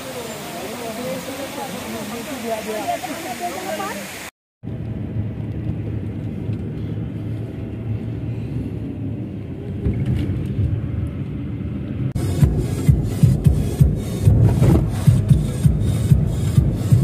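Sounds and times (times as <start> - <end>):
car driving rumble: 4.6 - 17.0.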